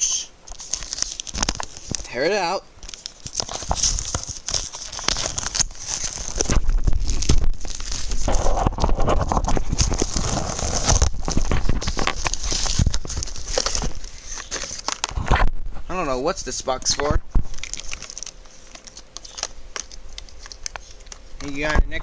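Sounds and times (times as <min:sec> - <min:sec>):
packaging being torn open: 0:00.5 - 0:15.3, 0:17.0 - 0:21.8.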